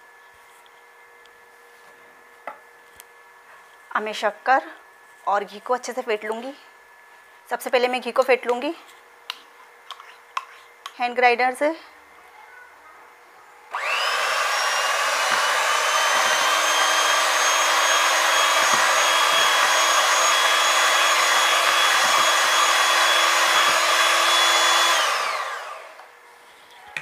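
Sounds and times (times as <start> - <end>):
electric hand mixer whining: 13.7 - 26.1.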